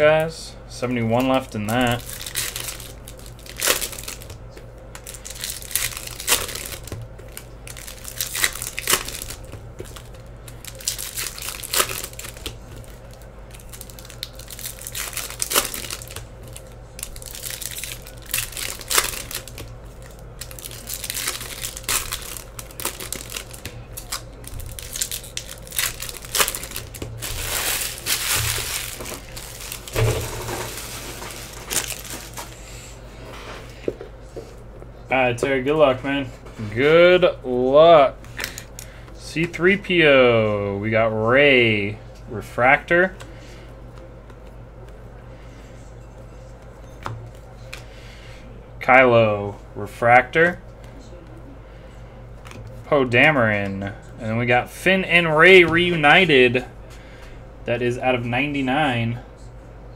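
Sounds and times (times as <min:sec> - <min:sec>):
foil wrappers tearing and crinkling: 0:01.2 - 0:04.4, 0:05.0 - 0:32.6.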